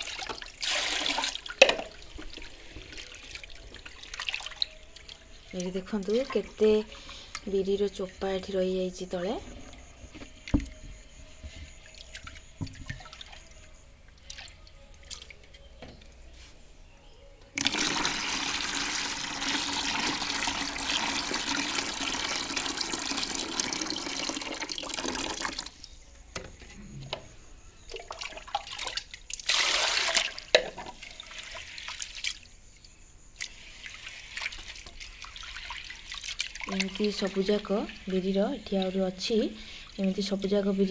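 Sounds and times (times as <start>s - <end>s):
water pouring into plastic tub: 0.0s - 7.5s, 17.6s - 25.8s, 27.9s - 32.5s, 33.4s - 38.9s
hand rubbing wet lentils: 33.4s - 40.2s.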